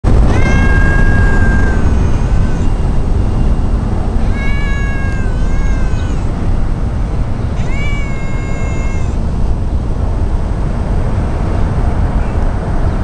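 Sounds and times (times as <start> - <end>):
steady low rumble: 0.0 - 13.0
cat meowing: 0.1 - 9.3.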